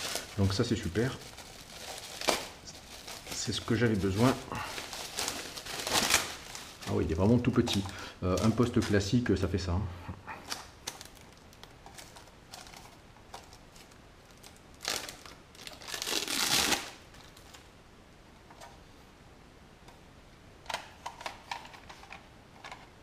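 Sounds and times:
bubble wrap bag crinkling: 0.0s - 9.4s, 10.4s - 17.7s.

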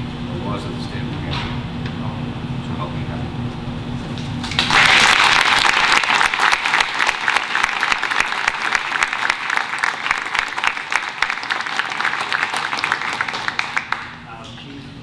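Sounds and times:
audience clapping: 4.4s - 14.6s.

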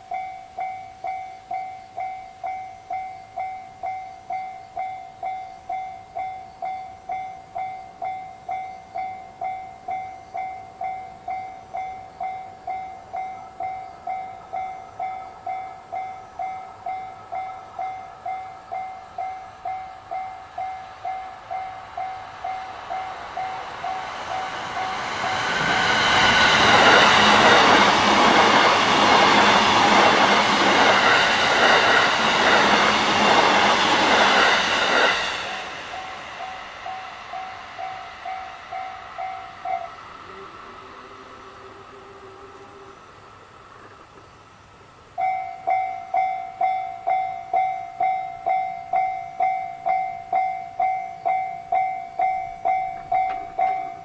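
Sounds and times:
train passing: 0.0s - 54.0s
level crossing bell dinging: 45.2s - 54.0s.

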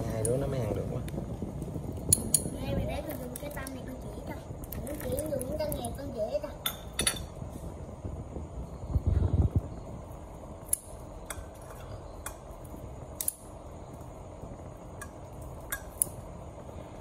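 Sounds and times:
clinks on ceramic plate: 6.6s - 7.3s.

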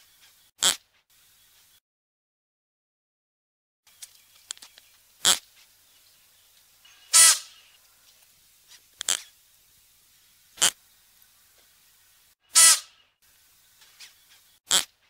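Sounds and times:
antelope short calls: 6.9s - 7.7s, 12.5s - 13.0s.

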